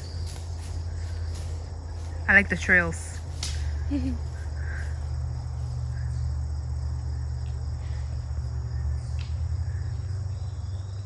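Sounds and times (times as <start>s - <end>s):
insects buzzing: 0.0s - 11.0s.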